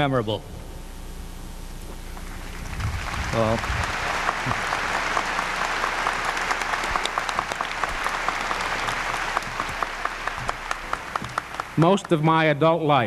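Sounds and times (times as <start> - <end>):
audience applauding: 2.2 - 12.6.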